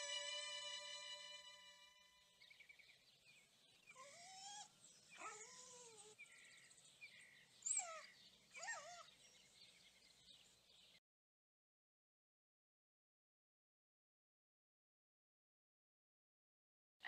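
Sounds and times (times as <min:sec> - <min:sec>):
dog whining: 0:03.9 - 0:06.2, 0:07.6 - 0:09.1.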